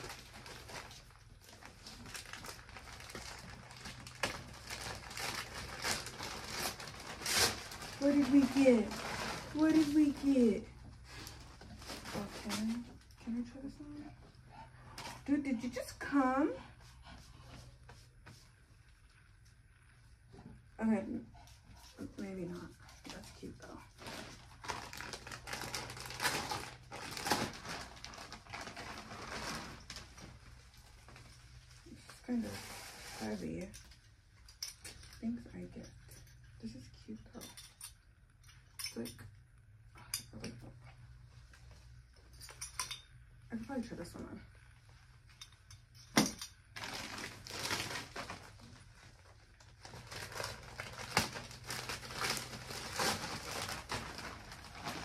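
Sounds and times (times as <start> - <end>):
plastic garment bag crinkling: 0.0 - 13.1, 22.1 - 32.5, 46.4 - 55.0.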